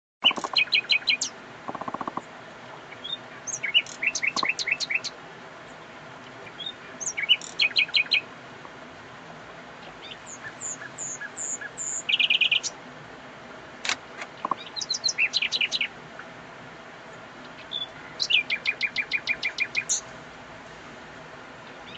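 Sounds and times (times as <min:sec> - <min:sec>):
nightingale singing: 0:00.2 - 0:08.3, 0:09.8 - 0:12.8, 0:14.3 - 0:16.0, 0:17.1 - 0:20.1, 0:21.6 - 0:21.9.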